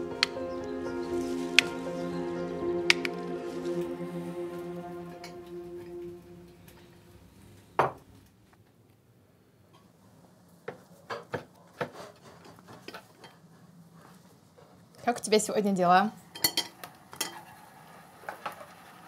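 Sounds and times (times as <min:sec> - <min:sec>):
cutlery clinking on plates: 0:16.4 - 0:17.4.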